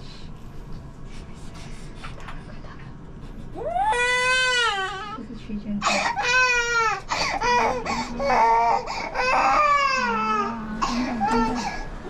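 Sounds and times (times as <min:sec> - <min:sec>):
infant crying: 0:03.6 - 0:05.2, 0:05.8 - 0:11.8.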